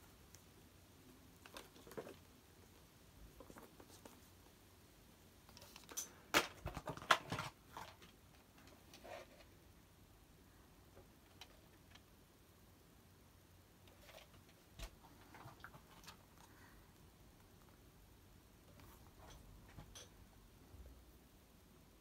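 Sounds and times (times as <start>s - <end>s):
plastic cassette case rustling: 5.6s - 9.0s.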